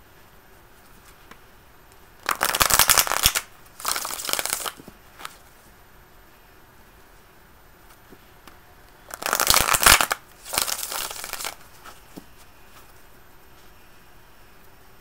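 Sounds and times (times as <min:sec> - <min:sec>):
cards being shuffled: 0:02.2 - 0:05.4, 0:09.1 - 0:13.0.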